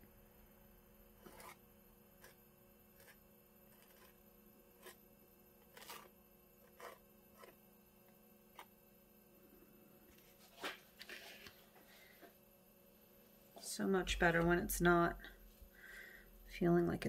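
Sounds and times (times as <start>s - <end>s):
palette knife scraping canvas: 1.2s - 1.6s, 2.2s - 2.4s, 3.0s - 4.2s, 4.8s - 5.0s, 5.6s - 7.6s.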